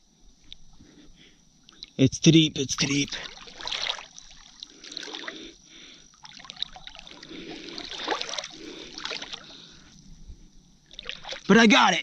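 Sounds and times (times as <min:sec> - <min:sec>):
river water sloshing and trickling: 0:02.6 - 0:11.9
small water splashes: 0:02.7 - 0:10.0, 0:10.8 - 0:11.8.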